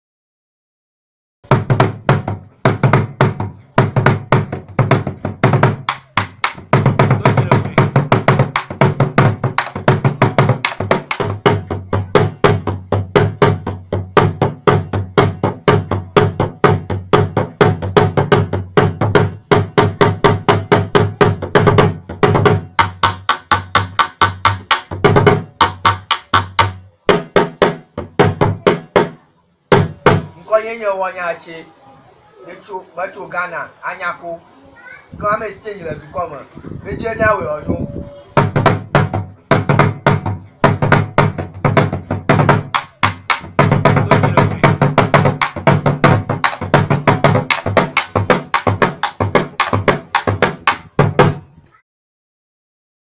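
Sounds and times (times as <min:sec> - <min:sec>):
drum played with stick and hand: 0:01.4 - 0:30.4, 0:37.0 - 0:51.5.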